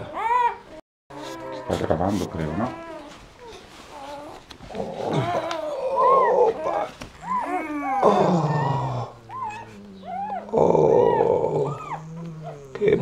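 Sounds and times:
dog groaning: 0.0s - 13.0s
puppies squealing and whining: 0.0s - 13.0s.

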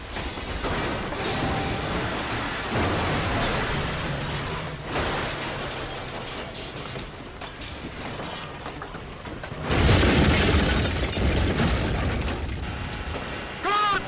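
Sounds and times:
car crashing and crunching: 0.0s - 13.6s
person calling out: 13.6s - 14.0s.

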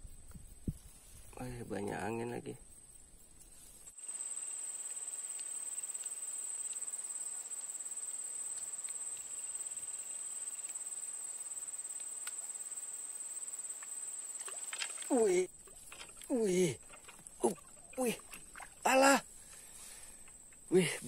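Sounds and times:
insects trilling: 0.0s - 21.0s
faint ticks: 4.7s - 12.7s, 13.7s - 21.0s.

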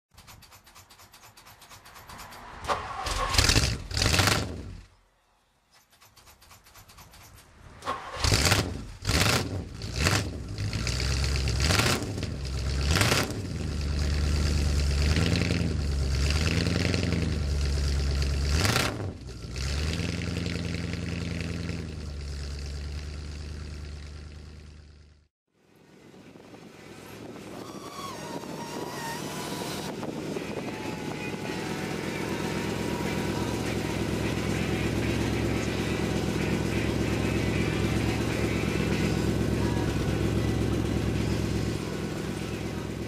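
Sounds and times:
car engine cranking: 0.1s - 4.9s, 5.7s - 25.1s, 27.2s - 43.0s
car engine revving: 1.8s - 4.9s, 7.9s - 25.1s, 26.8s - 43.0s
car engine idling: 9.7s - 25.3s, 26.4s - 43.0s.

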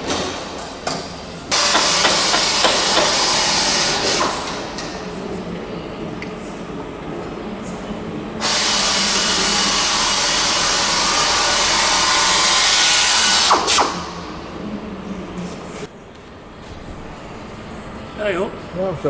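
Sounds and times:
power drill running: 1.5s - 4.4s, 8.4s - 13.7s.

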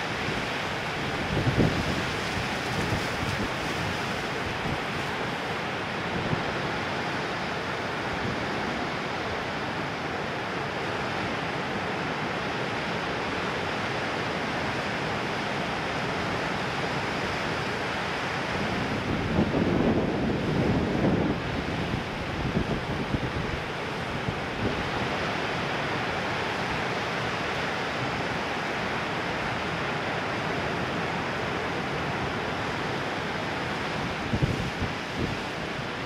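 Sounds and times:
wind on microphone: 0.0s - 5.4s, 18.6s - 25.0s, 33.8s - 36.0s
ocean surf breaking: 14.4s - 36.0s.

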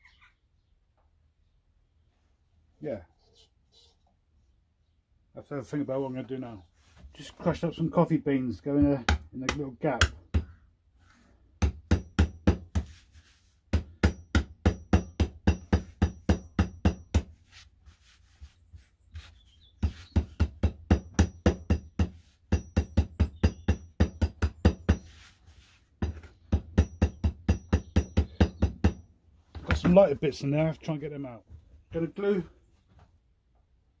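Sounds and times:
hammer tapping coffee beans: 11.6s - 12.9s, 13.7s - 17.3s, 19.8s - 25.2s, 26.0s - 29.0s.

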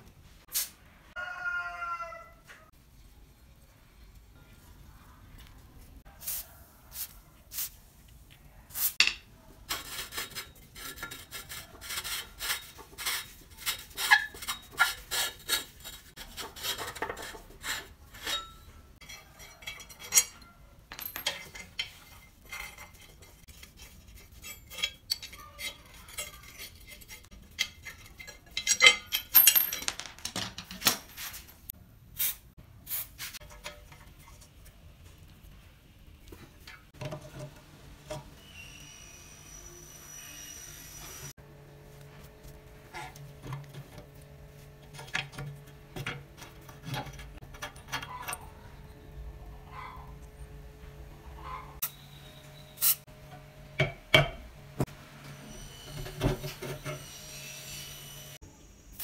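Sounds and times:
metal parts scraping and clinking: 9.0s - 31.7s, 33.4s - 34.6s, 44.7s - 49.0s.

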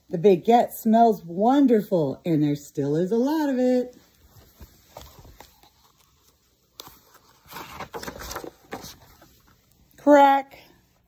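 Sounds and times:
book page turning: 3.9s - 9.8s
phone handling rustle: 4.1s - 9.8s.

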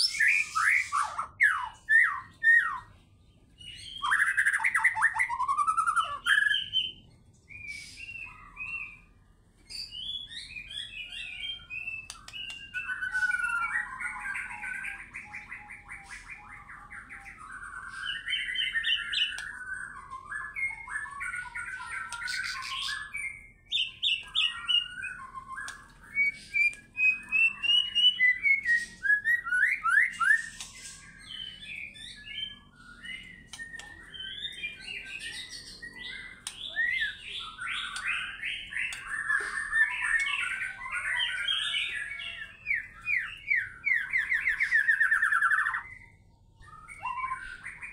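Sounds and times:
bird singing whistles and trills: 0.0s - 47.9s.

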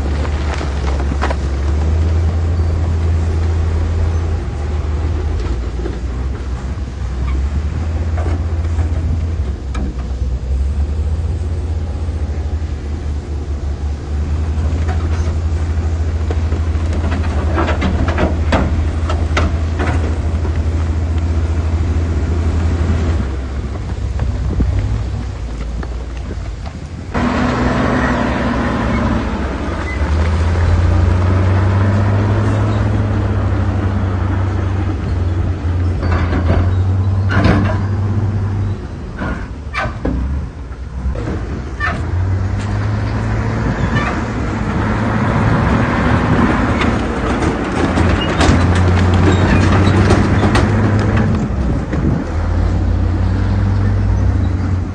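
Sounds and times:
heavy diesel engine droning: 0.0s - 54.9s
sharp metal knocks and clanks: 36.0s - 38.0s.

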